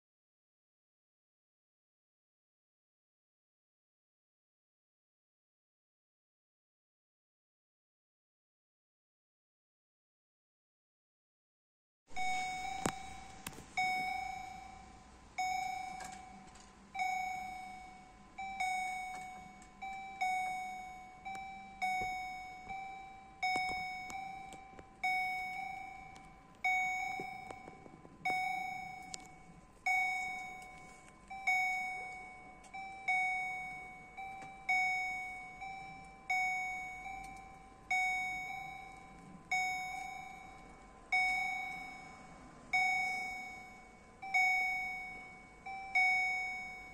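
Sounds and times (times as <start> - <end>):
level crossing bell dinging: 12.2 - 46.9.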